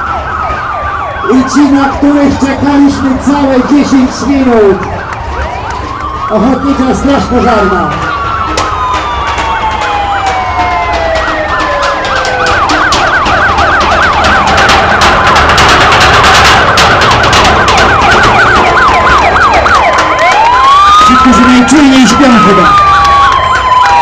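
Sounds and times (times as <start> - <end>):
fire engine siren: 0.0 - 24.0.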